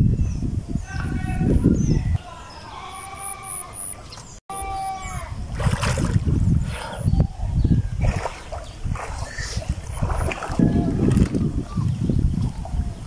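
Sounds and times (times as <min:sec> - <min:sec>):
wind buffeting microphone: 0:00.0 - 0:02.9, 0:04.0 - 0:13.0.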